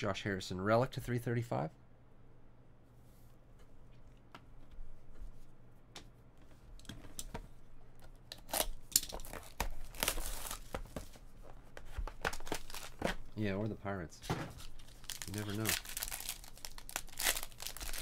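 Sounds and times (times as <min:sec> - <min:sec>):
foil pack crinkling: 0:12.2 - 0:13.1, 0:14.6 - 0:18.0.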